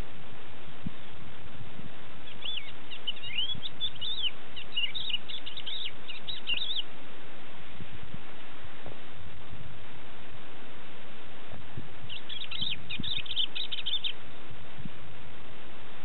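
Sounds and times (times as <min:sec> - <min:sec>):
steady hiss: 0:00.0 - 0:16.0
lark singing: 0:02.2 - 0:06.9, 0:12.1 - 0:14.2.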